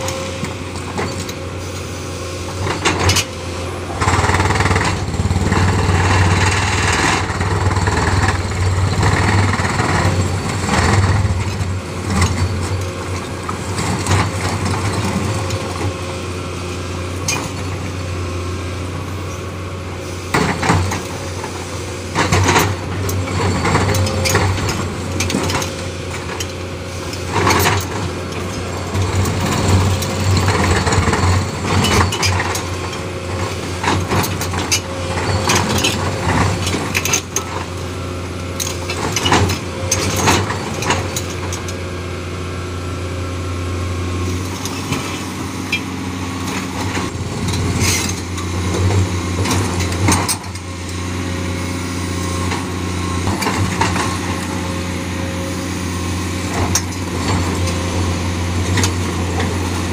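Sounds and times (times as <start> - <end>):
excavator engine running: 0.0 - 59.9
hydraulic breaker hammering rock: 2.7 - 15.8.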